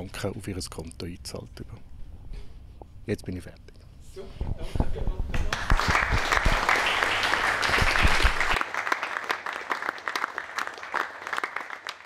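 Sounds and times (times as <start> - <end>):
audience applause: 5.5 - 12.0.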